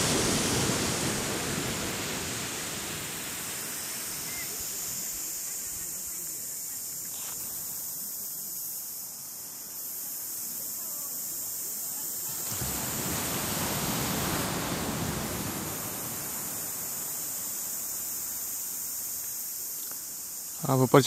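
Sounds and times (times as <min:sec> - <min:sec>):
rushing wave noise: 0:00.0 - 0:05.6, 0:12.3 - 0:18.4
steady high hiss: 0:00.0 - 0:21.0.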